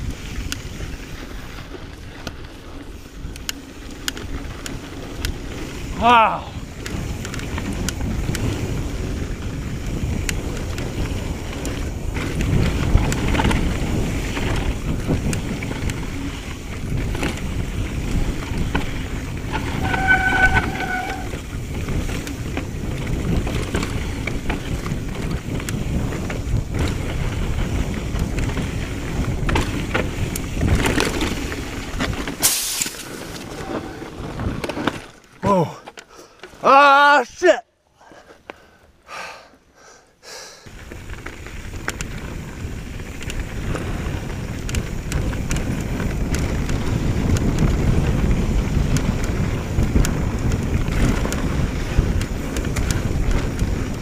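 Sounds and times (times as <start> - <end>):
bike tyres rattling over rocks: 0.0 - 36.8, 40.7 - 54.0
wind on microphone: 4.4 - 34.9, 40.7 - 54.0
high squeal: 19.6 - 21.4
tyre hissing: 32.4 - 34.0.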